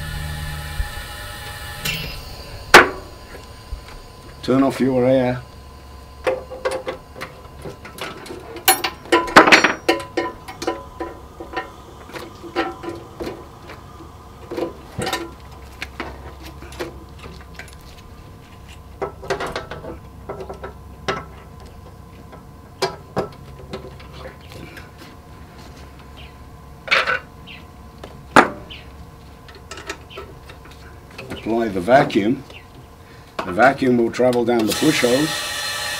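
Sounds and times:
faint steady hum: 0:00.0 - 0:35.9
clicks and metallic knocks: 0:06.2 - 0:13.4.

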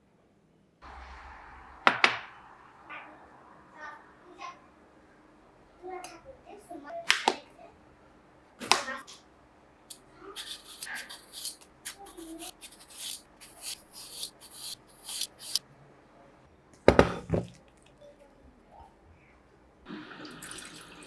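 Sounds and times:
vegetable peeler scraping: 0:10.4 - 0:15.6.

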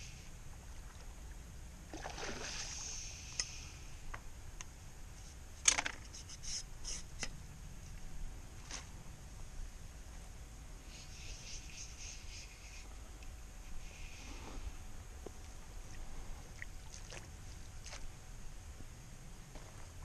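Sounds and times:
fish splashing at water surface: 0:01.9 - 0:03.1.

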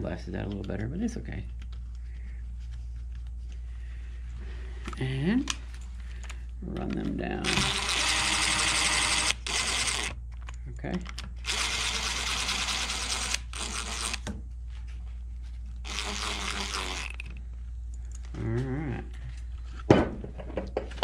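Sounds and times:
cordless drill driving screws: 0:07.4 - 0:10.2, 0:11.4 - 0:14.3, 0:15.9 - 0:17.3.

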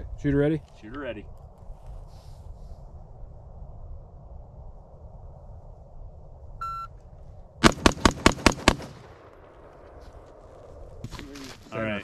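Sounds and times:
electronic start beep: 0:06.6 - 0:06.9
rifle firing rapid shots: 0:07.6 - 0:09.1.

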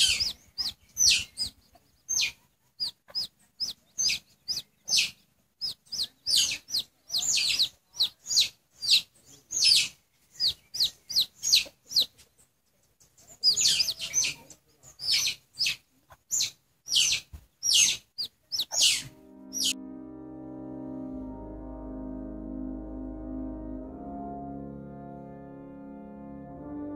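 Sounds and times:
chicks peeping: 0:00.0 - 0:19.8
music: 0:19.0 - 0:26.9.

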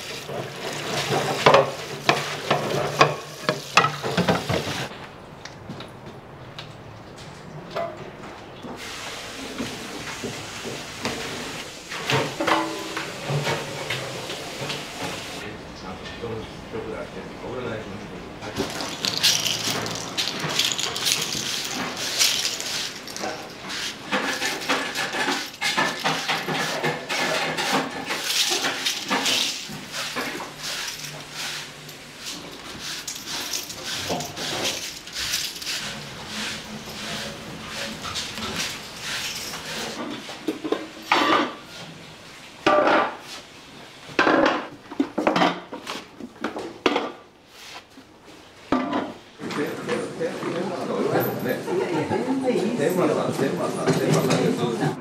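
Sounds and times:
broom sweeping shells on concrete: 0:00.0 - 0:04.9, 0:18.6 - 0:41.8, 0:47.5 - 0:48.0
metal bar stools clanking: 0:00.2 - 0:04.9, 0:12.1 - 0:14.0, 0:18.6 - 0:41.6.

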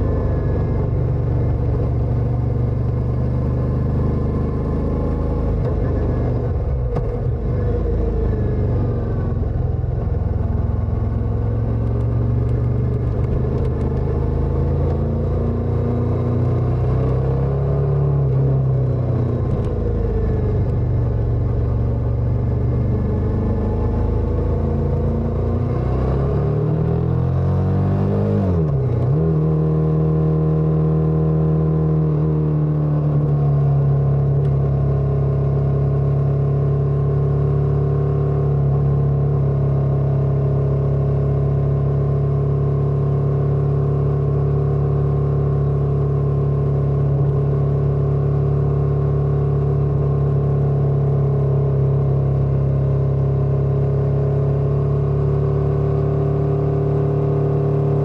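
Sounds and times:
motorcycle engine: 0:00.0 - 0:25.5.

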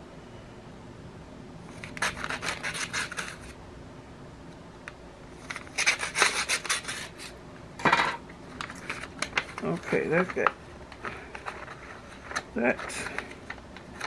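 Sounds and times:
paper envelopes rustling: 0:08.5 - 0:14.0.

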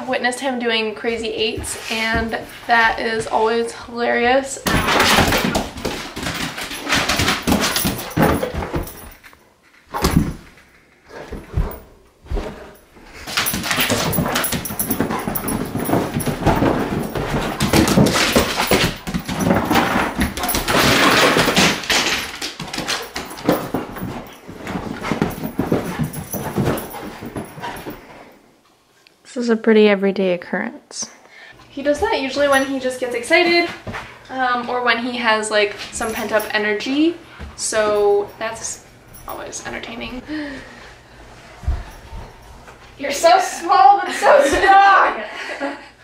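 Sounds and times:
dog paws thudding and scrabbling: 0:00.6 - 0:28.3, 0:31.8 - 0:40.2, 0:41.5 - 0:45.0
dog excited noises: 0:04.7 - 0:09.3, 0:11.1 - 0:28.2.

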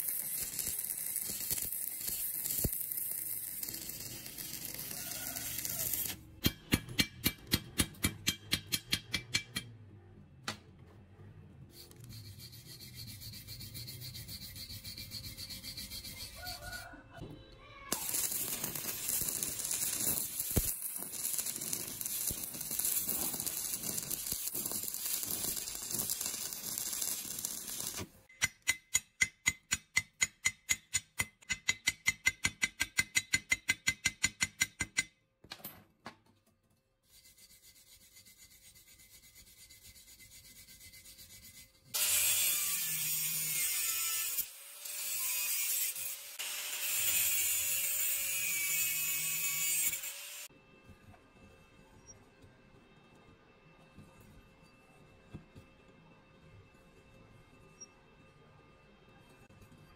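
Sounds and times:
angle grinder grinding metal: 0:00.0 - 0:06.2, 0:18.0 - 0:28.0, 0:42.0 - 0:50.5
welding arc crackling and hissing: 0:00.0 - 0:06.2, 0:17.9 - 0:28.2.

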